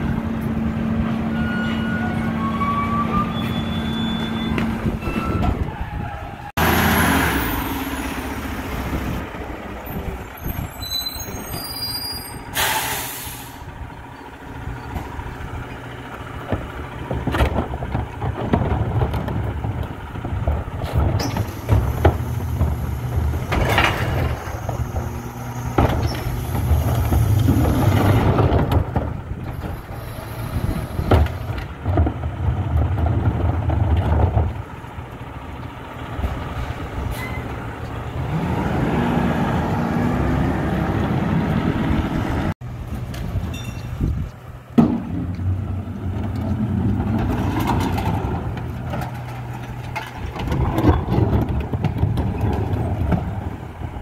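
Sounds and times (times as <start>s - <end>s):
diesel truck engine running: 0.0s - 54.0s
air brake hiss: 12.4s - 13.7s
knocks and clatter of recyclables: 16.1s - 38.0s, 42.8s - 54.0s.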